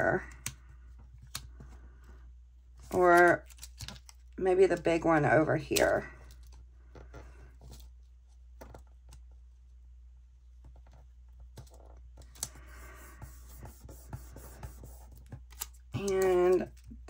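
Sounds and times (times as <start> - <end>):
sticker backing clicks and crinkles: 2.8 - 7.9, 15.1 - 17.0.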